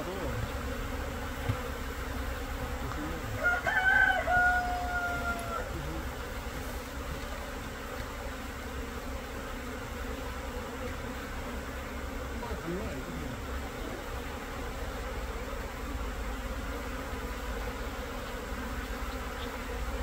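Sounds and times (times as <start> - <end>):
bees buzzing: 0.0 - 20.0
drawn-out call: 3.2 - 6.0.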